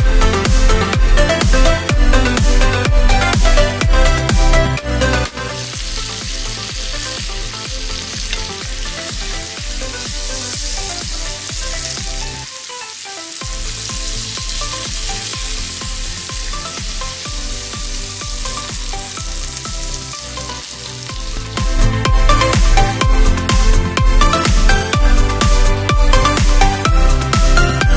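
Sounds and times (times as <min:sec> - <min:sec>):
background music with steady beat: 0:00.0 - 0:27.9
steaks sizzling in a pan: 0:05.4 - 0:27.5.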